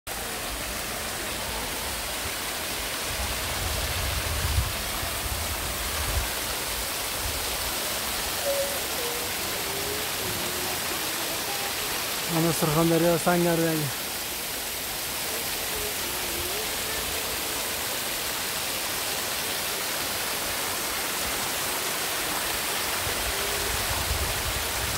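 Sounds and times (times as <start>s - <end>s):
waterfall rushing: 0.1s - 24.9s.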